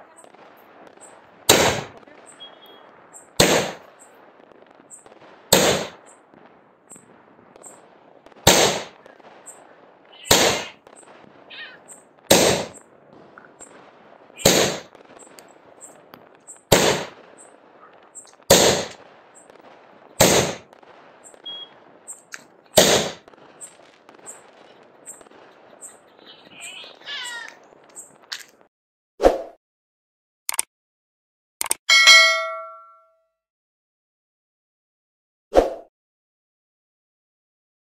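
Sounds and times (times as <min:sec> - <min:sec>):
firework shots banging: 0:00.0 - 0:28.7.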